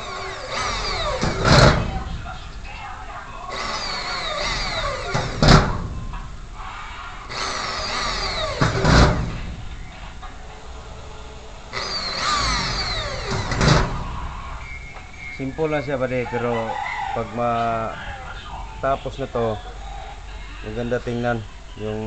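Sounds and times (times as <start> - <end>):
electric drill whining: 0.0 - 20.8.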